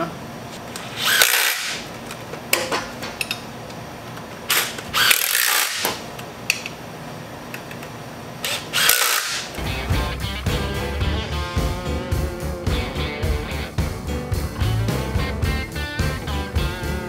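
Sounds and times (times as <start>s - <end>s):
ratchet wrench ratcheting: 0.8s - 1.8s, 4.5s - 6.0s, 8.4s - 9.6s.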